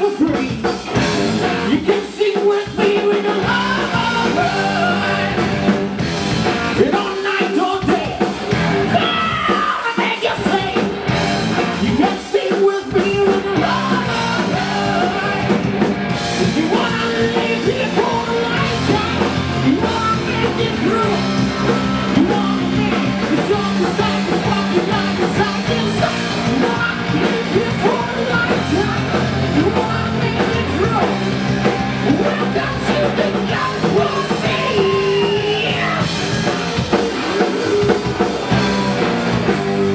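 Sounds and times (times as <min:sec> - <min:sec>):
rock band playing: 0:00.0 - 0:39.9
man singing into microphone: 0:01.7 - 0:05.4, 0:06.8 - 0:08.2, 0:08.9 - 0:10.9, 0:11.8 - 0:15.5, 0:16.4 - 0:21.3, 0:22.1 - 0:31.2, 0:32.0 - 0:36.1.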